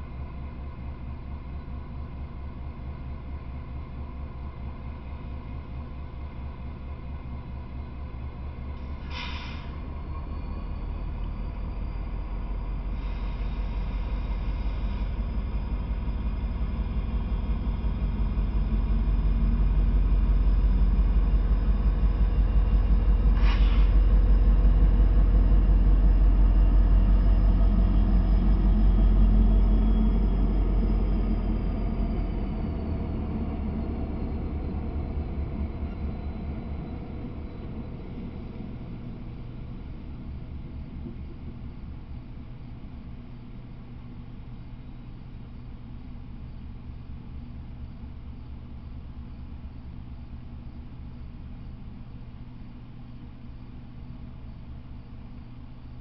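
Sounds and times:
diesel locomotives rumbling past: 0:00.0 - 0:42.5.

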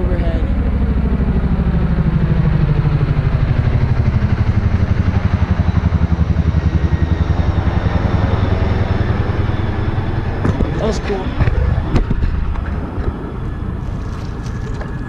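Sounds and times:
helicopter rotor blades chopping: 0:00.0 - 0:15.0.

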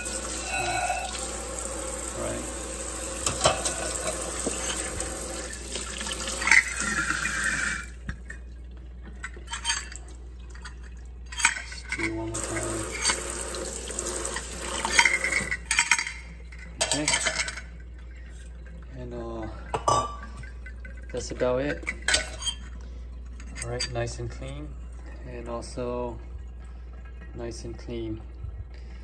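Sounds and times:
tap running into metal sink: 0:03.1 - 0:07.3.

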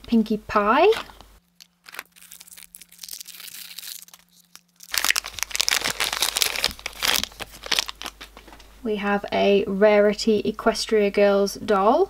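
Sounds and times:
foil wrapper crinkling: 0:01.4 - 0:08.6.

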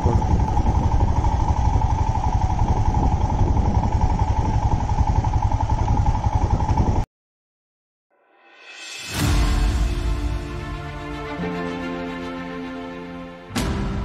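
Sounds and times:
motorcycle engine running: 0:00.0 - 0:07.1
music: 0:08.1 - 0:14.0.

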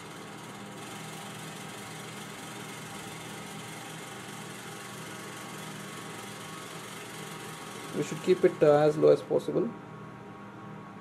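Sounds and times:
oven conveyor motor humming: 0:00.0 - 0:11.0.

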